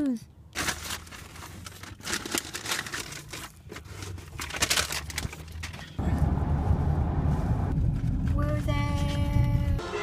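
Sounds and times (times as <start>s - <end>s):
crinkling and rustling: 0.5s - 6.3s
low rumble: 6.0s - 9.8s.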